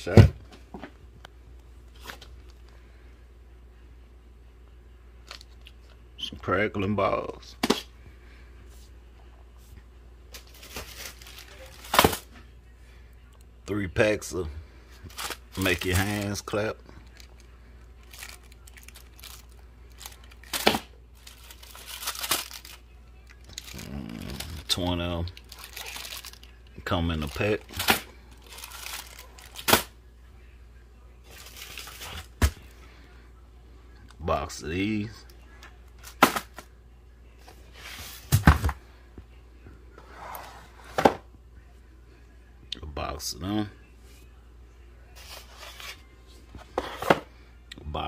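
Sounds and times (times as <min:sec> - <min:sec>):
plastic shrink-wrap crinkling: 0:10.4 - 0:12.3, 0:15.1 - 0:29.9, 0:31.3 - 0:32.3.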